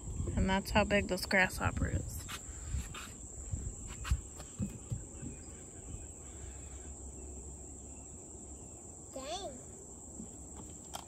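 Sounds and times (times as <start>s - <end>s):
insects droning: 0.0s - 11.0s
soft knocks: 4.4s - 5.5s.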